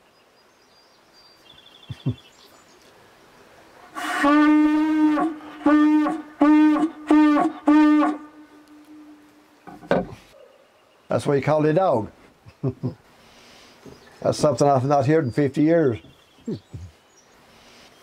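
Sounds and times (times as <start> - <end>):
hunting horn blasts: 3.9 - 9.4
soft knocks: 9.7 - 10.2.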